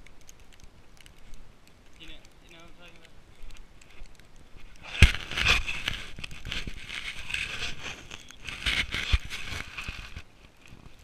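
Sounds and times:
footsteps crunching in snow: 0:04.6 - 0:10.3.

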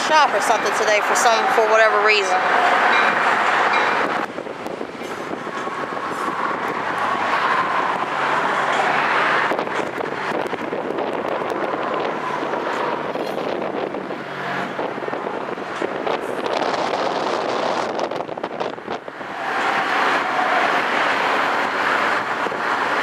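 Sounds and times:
rail traffic rumble: 0:00.0 - 0:23.0
road traffic rumble: 0:00.0 - 0:23.0
wind buffeting microphone: 0:00.0 - 0:23.0.

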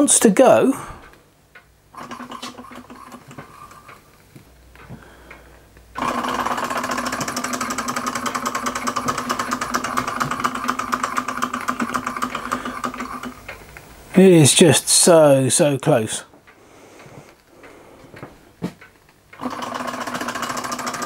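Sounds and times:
hot air engine clattering: 0:06.0 - 0:13.4.

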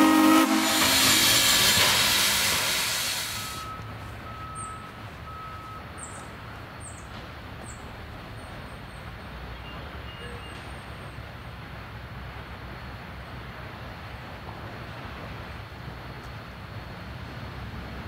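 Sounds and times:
steam locomotive hissing: 0:00.0 - 0:03.9.

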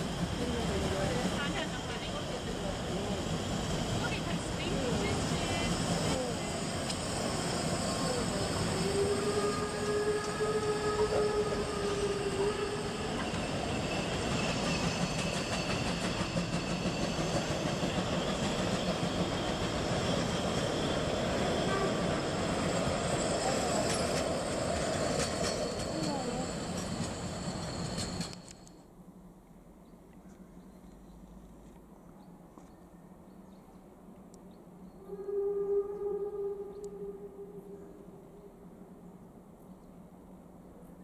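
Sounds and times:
train coaches rolling on rails: 0:00.0 - 0:28.8.

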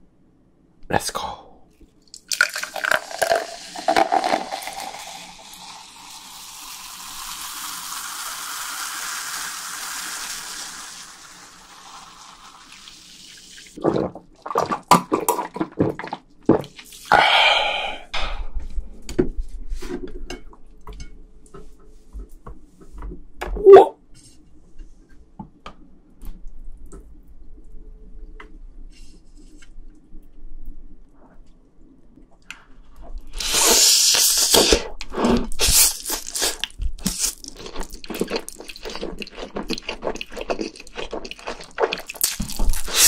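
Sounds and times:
drink pouring into a glass: 0:02.2 - 0:13.6.

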